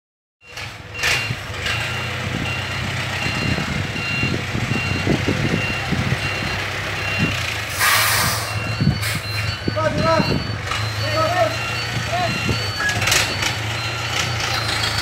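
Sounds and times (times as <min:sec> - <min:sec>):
diesel engine idling: 0:00.4 - 0:15.0
reversing alarm beeping: 0:00.4 - 0:15.0
brief hiss: 0:07.8 - 0:08.5.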